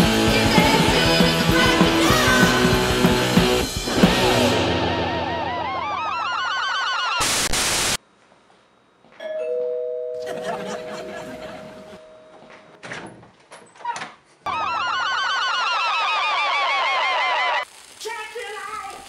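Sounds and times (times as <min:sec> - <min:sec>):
rock music with guitar: 0:00.0 - 0:06.0
two-note doorbell chime: 0:09.2 - 0:12.8.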